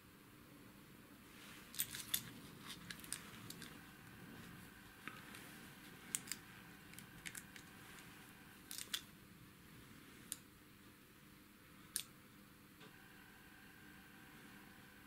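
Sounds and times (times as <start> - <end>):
gloved hands rubbing lamp: 1.4 - 8.5.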